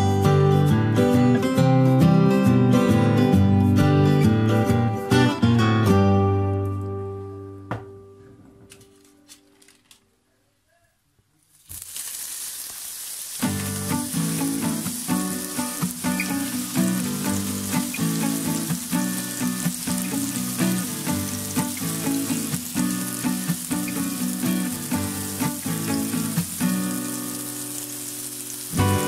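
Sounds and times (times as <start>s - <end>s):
burger sizzling in a frying pan: 11.5s - 29.0s
background music: 13.6s - 29.0s.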